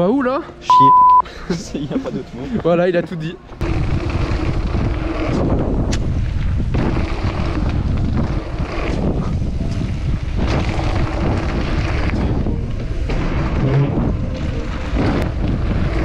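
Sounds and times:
wind buffeting microphone: 0:03.6 - 0:16.0.

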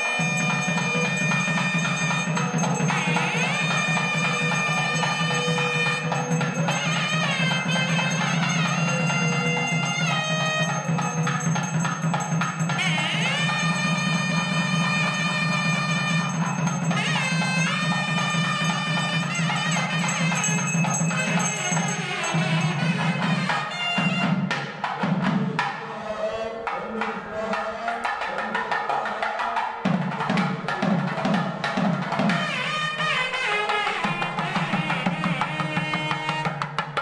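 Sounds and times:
reed pipe melody: 0:00.0 - 0:24.4, 0:32.2 - 0:36.8
drumming: 0:00.0 - 0:26.0, 0:26.7 - 0:37.0.

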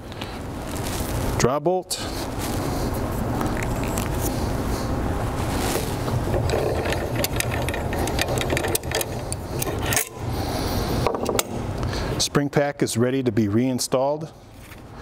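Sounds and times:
mechanical running noise: 0:06.0 - 0:10.4.

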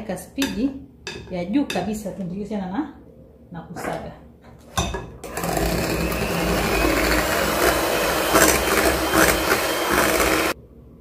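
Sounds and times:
electric hand mixer whipping cream: 0:05.2 - 0:10.6.

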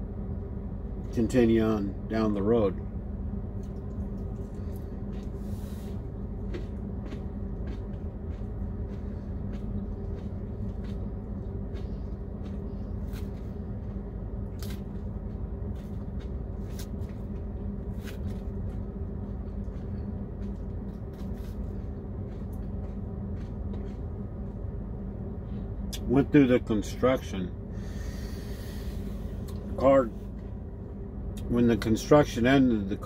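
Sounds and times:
low hum in truck cab: 0:00.0 - 0:33.0
man chewing: 0:03.6 - 0:26.0, 0:27.8 - 0:31.5.

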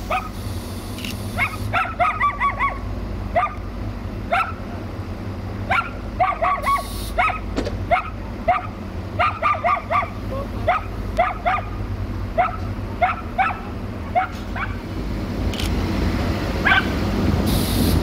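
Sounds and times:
diesel railcar rumble: 0:00.0 - 0:18.0
dog barking: 0:00.1 - 0:00.4, 0:01.4 - 0:03.6, 0:04.3 - 0:04.6, 0:05.7 - 0:11.8, 0:12.4 - 0:14.8, 0:16.6 - 0:17.0.

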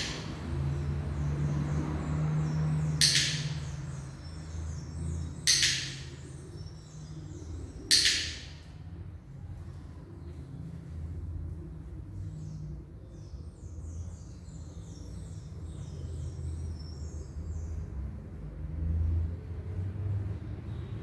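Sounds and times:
bird twittering: 0:02.4 - 0:08.6.

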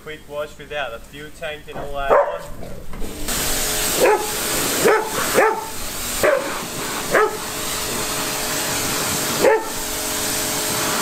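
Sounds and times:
water spraying: 0:00.0 - 0:11.0
dog barking: 0:02.0 - 0:02.6, 0:04.0 - 0:07.5, 0:09.4 - 0:09.8.

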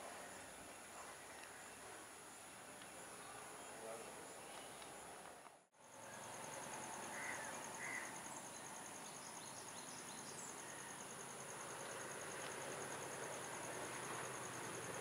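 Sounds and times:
insect pulsing chirp: 0:05.8 - 0:15.0.

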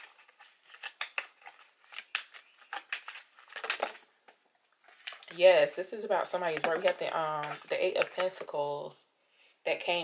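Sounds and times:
cards being shuffled: 0:00.0 - 0:05.3.

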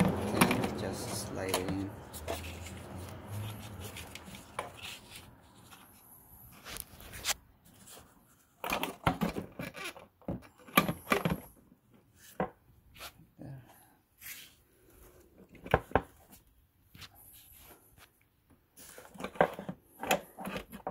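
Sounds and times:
plastic parts clicking and knocking: 0:00.0 - 0:02.4, 0:08.6 - 0:11.6, 0:15.4 - 0:16.3, 0:19.0 - 0:20.9.

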